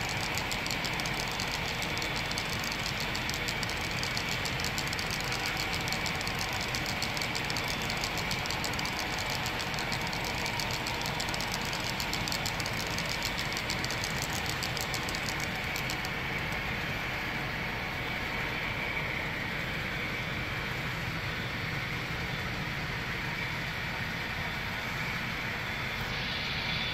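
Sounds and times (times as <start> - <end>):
model train wheels clicking: 0.0 - 17.2
steady hum: 0.0 - 26.9.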